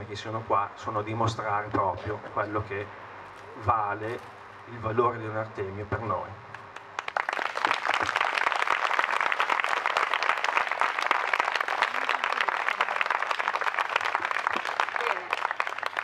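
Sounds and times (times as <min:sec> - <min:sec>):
crowd applauding: 0:07.0 - 0:16.0.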